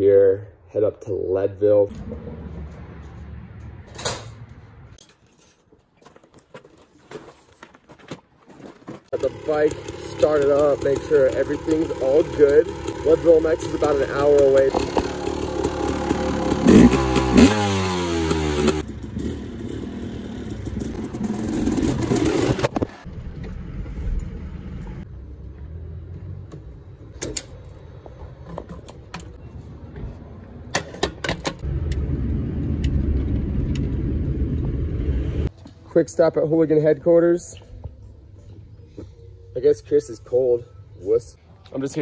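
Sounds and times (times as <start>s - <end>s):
vehicle driving drone from cabin: 1.9s - 5.0s, 31.6s - 35.5s
dirt bike engine revving: 9.1s - 23.1s.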